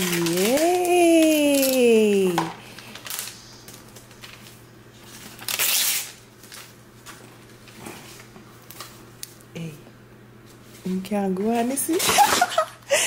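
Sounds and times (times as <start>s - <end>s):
wrapping paper rustling: 0.0s - 9.4s.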